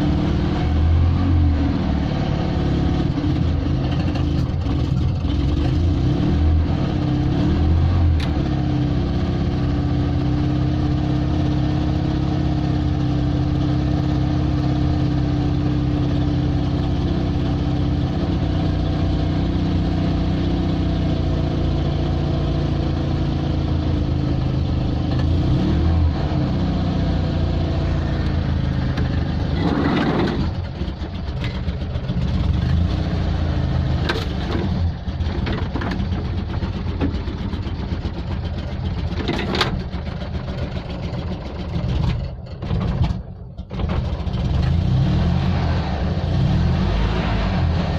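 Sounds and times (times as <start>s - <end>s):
flat-twin engine running: 2.0s - 6.0s, 26.8s - 44.7s
sharp knocks and rattles: 34.0s - 44.5s.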